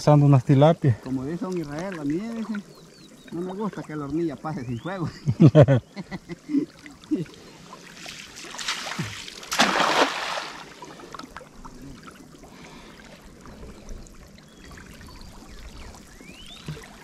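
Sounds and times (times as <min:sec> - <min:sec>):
water splashing: 0:01.0 - 0:05.2, 0:06.4 - 0:13.8.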